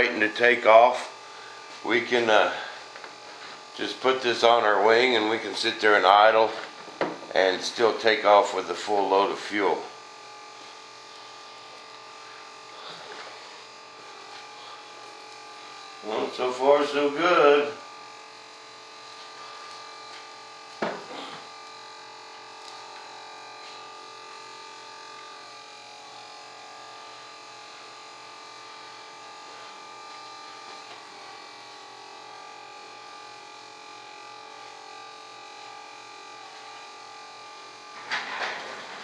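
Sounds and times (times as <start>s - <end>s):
electric fuel pump running: 0.0s - 39.0s
knock: 7.0s - 7.3s, 20.8s - 21.0s.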